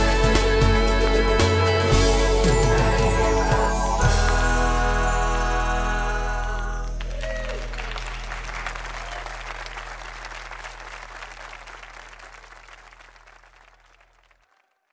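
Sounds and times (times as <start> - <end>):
audience applauding: 6.4 - 14.9.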